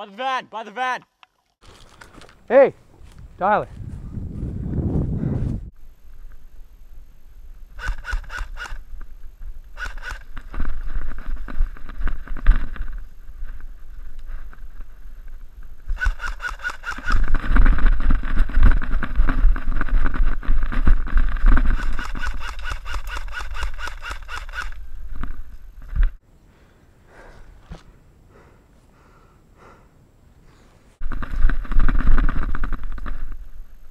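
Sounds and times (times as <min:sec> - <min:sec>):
heavy low thumps: 0:03.2 - 0:05.8.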